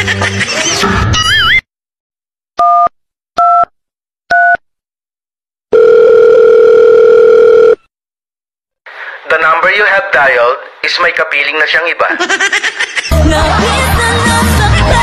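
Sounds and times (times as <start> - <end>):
steady phone-line tone: 5.7 - 7.8.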